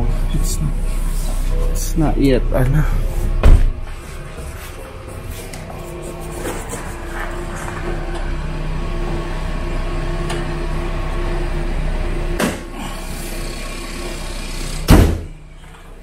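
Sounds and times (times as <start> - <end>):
loud thump: 3.4 - 3.8, 14.9 - 15.3.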